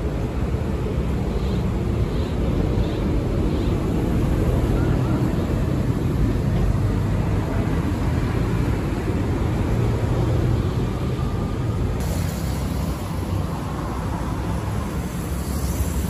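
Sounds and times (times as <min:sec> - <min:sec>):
traffic rumbling: 0:00.0 - 0:16.0.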